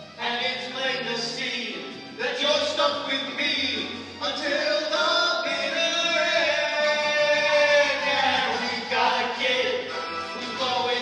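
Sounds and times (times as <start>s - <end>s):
band accompaniment: 0.0s - 11.0s
men singing a duet: 4.2s - 11.0s.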